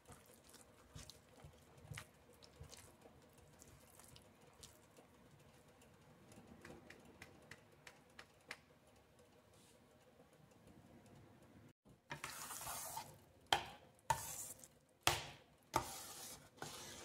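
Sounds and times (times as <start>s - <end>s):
metal spoon stirring in pan: 12.1s - 13.2s, 14.1s - 14.8s, 15.8s - 17.0s.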